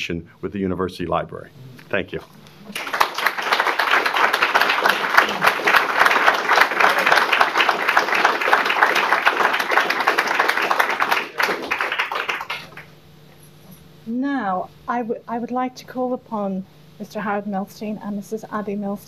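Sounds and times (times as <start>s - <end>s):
audience applauding: 2.6s - 12.9s.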